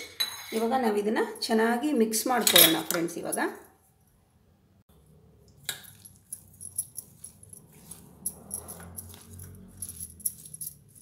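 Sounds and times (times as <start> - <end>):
spoon scraping steel bowl: 5.6 - 11.0
metal clinking: 5.7 - 11.0.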